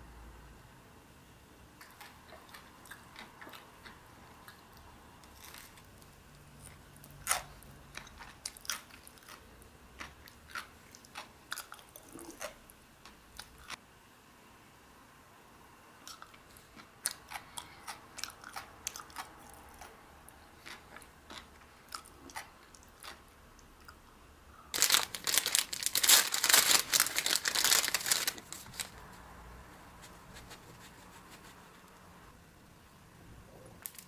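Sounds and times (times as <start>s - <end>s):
person chewing crunchy food: 1.8s - 13.8s, 16.0s - 24.0s.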